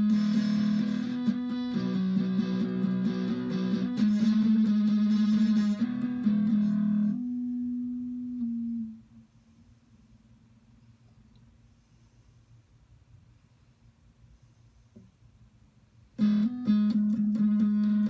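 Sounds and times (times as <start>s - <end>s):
electric guitar melody: 0.0s - 9.0s, 16.2s - 18.0s.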